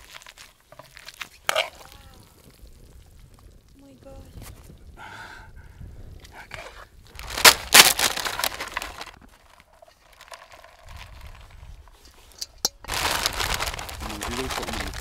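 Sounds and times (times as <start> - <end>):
tortilla chips crunching: 0.0 - 2.6, 7.1 - 11.6, 12.9 - 15.0.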